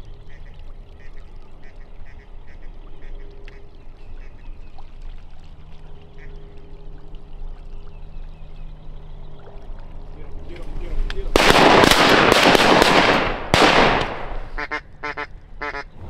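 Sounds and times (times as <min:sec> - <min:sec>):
steady low hum: 0:00.0 - 0:16.0
ducks quacking: 0:00.3 - 0:04.4, 0:14.6 - 0:16.0.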